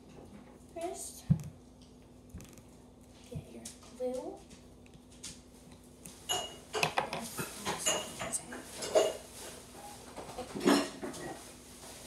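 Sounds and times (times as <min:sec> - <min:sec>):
dishes and cutlery clinking: 0:06.2 - 0:11.5.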